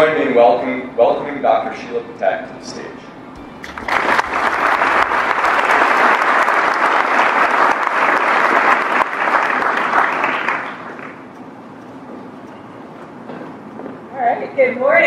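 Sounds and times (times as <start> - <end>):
audience applauding: 3.4 - 11.3.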